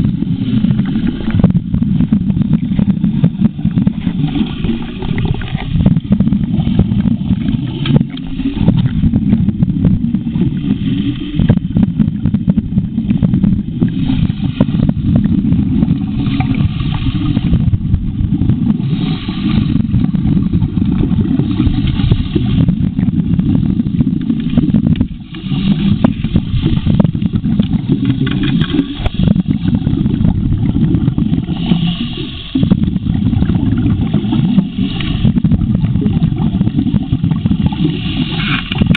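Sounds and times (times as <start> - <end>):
exhaled breath bubbles: 0.0 - 38.9
underwater dredge engine rumble: 0.0 - 38.9
gravel clicking in suction hose: 0.5 - 9.5, 24.0 - 38.9.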